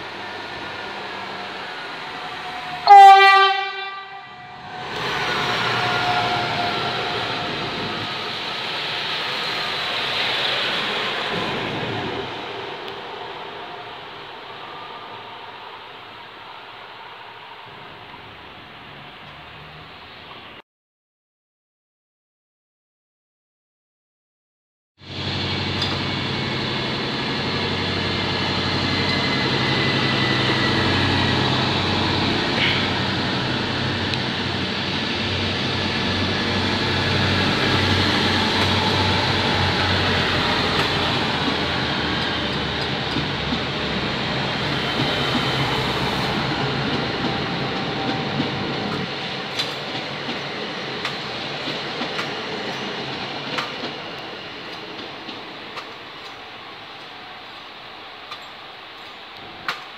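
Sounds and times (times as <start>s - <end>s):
diesel train engines humming: 0.0s - 20.3s, 25.0s - 59.9s
wheels clicking on track: 46.8s - 56.4s.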